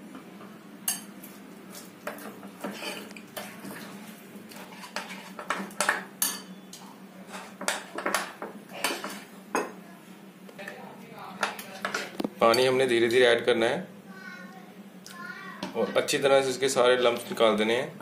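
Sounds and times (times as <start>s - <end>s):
spoon clinking against glass bowl: 6.2s - 6.7s.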